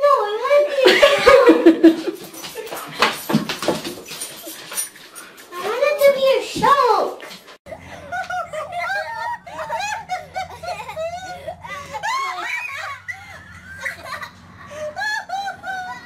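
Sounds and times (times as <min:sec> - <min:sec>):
people laughing: 0:00.7 - 0:03.0, 0:07.7 - 0:16.0
low steady hum: 0:07.7 - 0:16.0.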